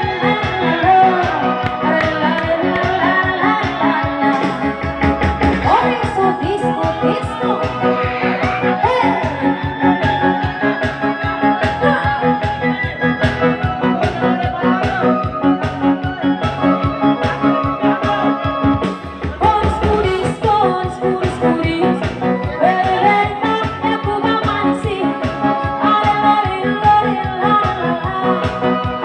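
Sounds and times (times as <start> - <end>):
person singing: 0.0 - 13.0, 13.6 - 29.0
electronic keyboard: 0.0 - 29.0
programmed drum beat: 2.1 - 8.6, 10.0 - 25.4.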